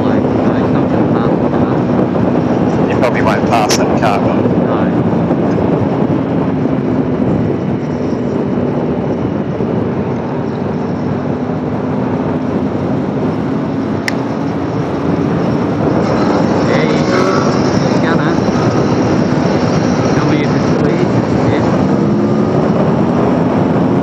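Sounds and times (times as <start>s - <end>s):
motorcycle engine cruising: 0.0s - 24.0s
rushing wind: 0.0s - 24.0s
sharp click: 14.0s - 14.2s.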